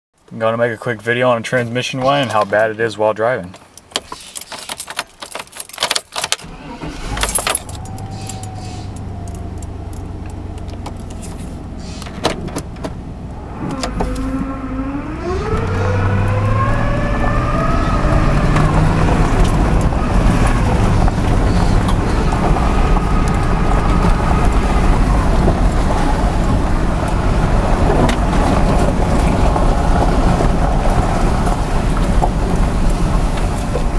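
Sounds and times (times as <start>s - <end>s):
engine and road noise: 0.2s - 33.9s
clicks and rattles: 3.5s - 6.5s
transmission whine: 6.5s - 32.6s.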